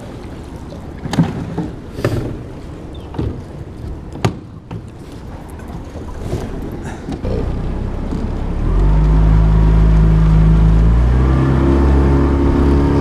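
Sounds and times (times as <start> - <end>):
steady low rumble: 5.2 - 12.8.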